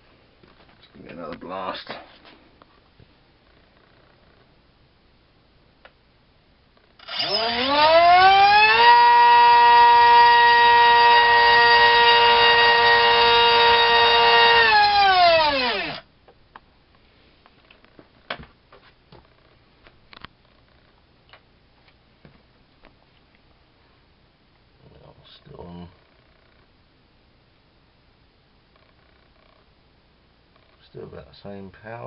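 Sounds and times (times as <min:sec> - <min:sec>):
electric motor propeller whining: 0:07.0 - 0:16.0.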